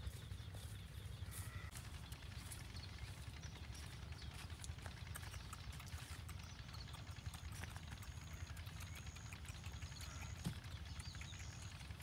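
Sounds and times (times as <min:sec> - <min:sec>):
footsteps in sandals on dirt: 0:00.0 - 0:06.6.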